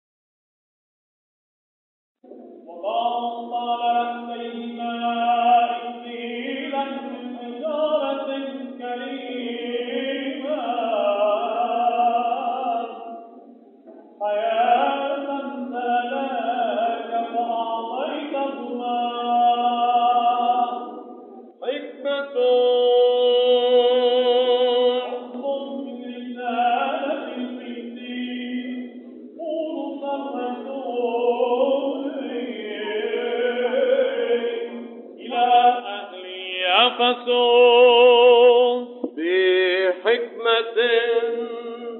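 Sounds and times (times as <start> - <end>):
man singing chant: 2.7 - 13.4, 14.2 - 41.9.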